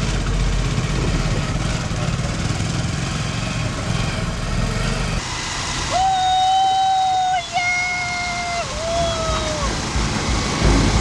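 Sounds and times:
motorcycle engine running: 0.0 - 6.2, 8.8 - 11.0
loud steady high tone: 5.2 - 11.0.

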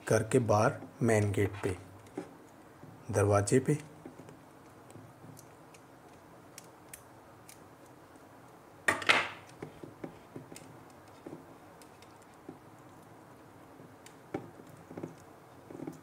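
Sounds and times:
handling of part and wire: 3.7 - 16.0.

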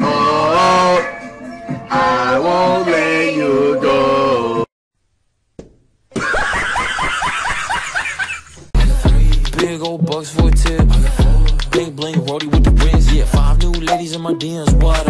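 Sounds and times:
man singing drawn-out notes: 0.0 - 4.7
high-pitched laughter: 6.2 - 8.6.

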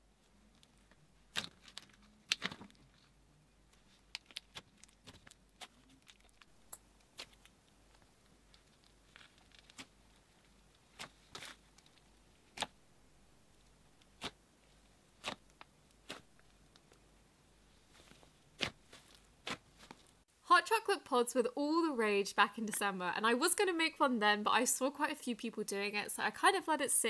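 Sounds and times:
sticky clicks and pops: 0.6 - 3.0, 4.1 - 9.9
slime squished by hand: 1.3 - 3.0, 3.7 - 6.5, 15.0 - 17.0, 17.8 - 20.0.

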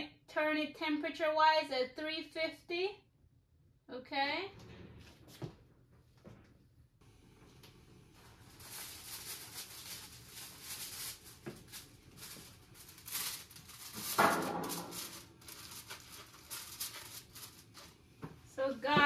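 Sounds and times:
foil rustling: 8.0 - 19.0.

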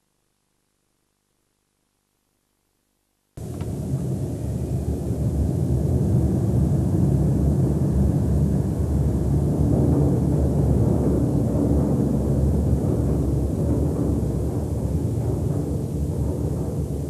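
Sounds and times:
deep steady rumble: 3.4 - 17.0.

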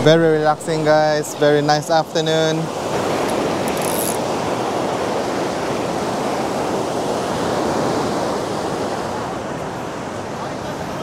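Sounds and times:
ocean waves breaking: 0.0 - 11.0.

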